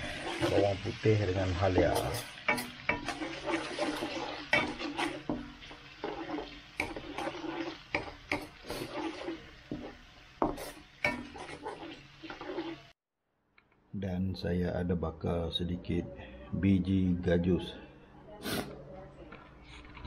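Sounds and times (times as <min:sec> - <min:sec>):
spatula scraping a metal wok: 0:00.0 - 0:01.0, 0:01.6 - 0:13.0
sizzling in oil: 0:00.0 - 0:13.0.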